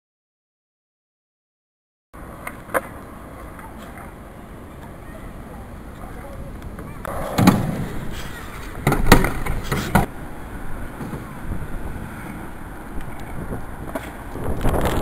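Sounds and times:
skateboard clacking on asphalt: 0:02.2 - 0:05.0, 0:05.7 - 0:10.1, 0:10.9 - 0:15.0
skateboard wheels rushing: 0:02.2 - 0:15.0.

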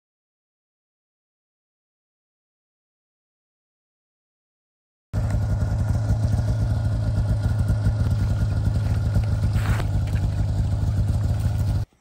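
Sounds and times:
snowmobile engine idling: 0:05.2 - 0:12.0.

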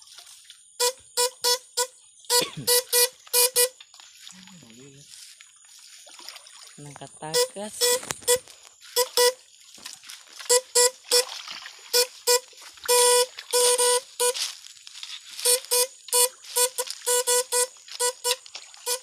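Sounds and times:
electrofishing rig buzzing: 0:00.8 - 0:03.8, 0:07.2 - 0:09.4, 0:10.3 - 0:19.0.

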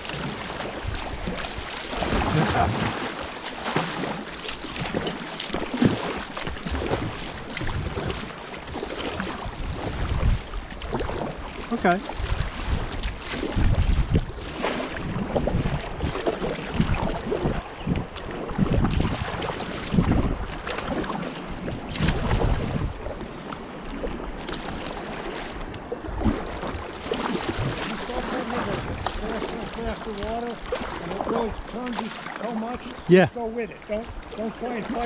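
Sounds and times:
river water rushing and splashing: 0:00.0 - 0:35.0
wind buffeting microphone: 0:04.7 - 0:23.3, 0:25.6 - 0:35.0.

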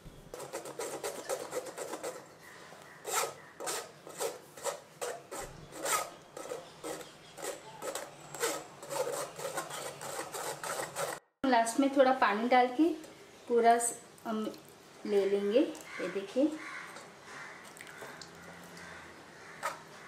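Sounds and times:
pulp scraped through a strainer: 0:00.3 - 0:02.4, 0:03.0 - 0:11.2.

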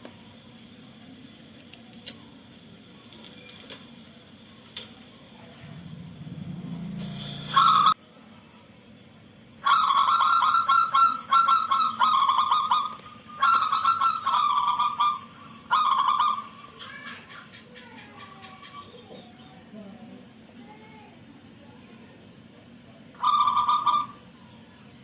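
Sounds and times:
faint high whine: 0:00.0 - 0:16.8
dove trilled cooing: 0:07.5 - 0:08.0, 0:09.6 - 0:19.7, 0:23.1 - 0:24.6.

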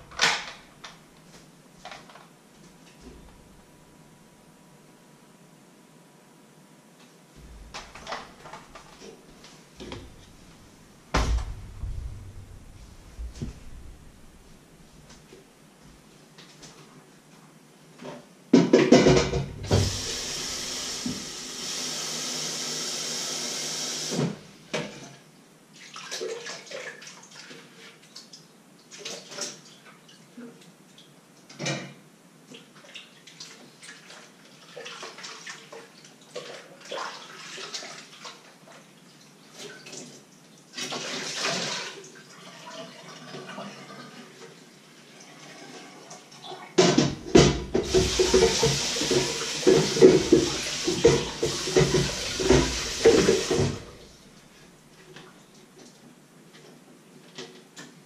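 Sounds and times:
water pouring: 0:40.8 - 0:44.4, 0:47.7 - 0:54.2.

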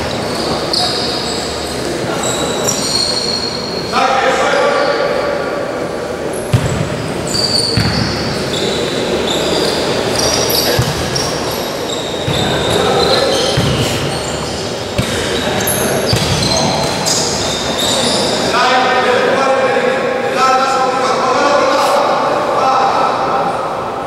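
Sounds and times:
sneakers squeaking on floor: 0:00.0 - 0:03.9, 0:06.3 - 0:18.6
players calling out: 0:06.4 - 0:19.0
ball kicked with dull thuds: 0:10.7 - 0:11.2, 0:13.6 - 0:14.0.

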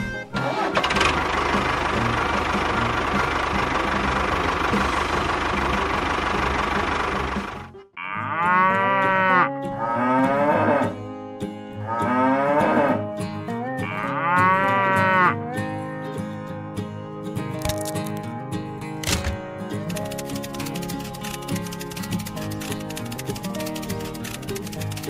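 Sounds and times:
tractor engine running: 0:00.0 - 0:07.9, 0:19.0 - 0:25.0
cattle mooing: 0:08.0 - 0:11.0, 0:11.8 - 0:16.0.

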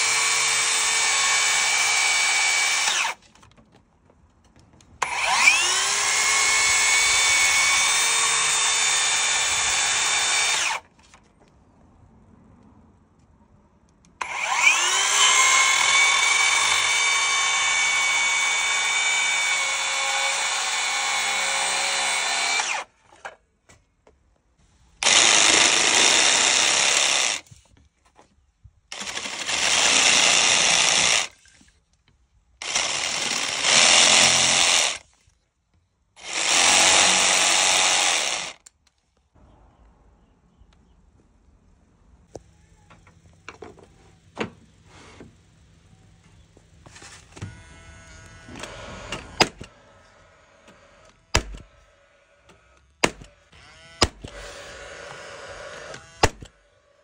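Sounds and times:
circular saw cutting wood: 0:00.0 - 0:03.2, 0:05.0 - 0:10.8, 0:14.2 - 0:22.9, 0:32.6 - 0:35.0, 0:36.2 - 0:38.6
jigsaw sawing through board: 0:05.0 - 0:10.8, 0:14.2 - 0:22.9, 0:25.0 - 0:27.4, 0:29.0 - 0:31.3, 0:32.6 - 0:35.0, 0:36.2 - 0:38.6.

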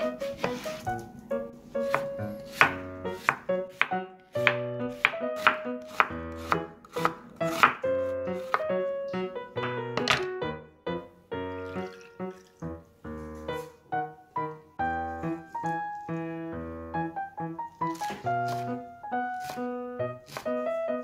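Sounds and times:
background music: 0:00.0 - 0:21.0
knife chopping on wooden board: 0:01.8 - 0:08.7, 0:17.9 - 0:18.8, 0:19.4 - 0:20.6.

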